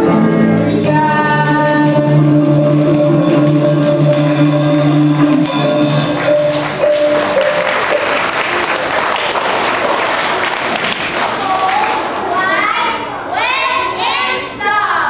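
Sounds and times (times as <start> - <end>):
music with held notes: 0.0 - 8.6
audience applauding: 5.8 - 12.4.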